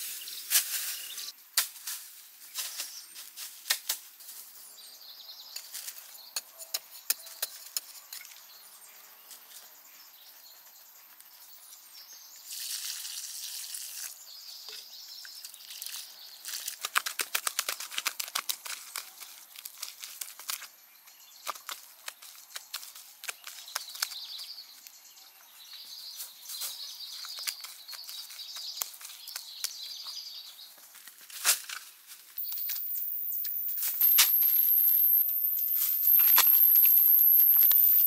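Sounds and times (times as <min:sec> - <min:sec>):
branches and soil crackling: 0:15.3 - 0:38.0
high insect drone: 0:32.4 - 0:38.0.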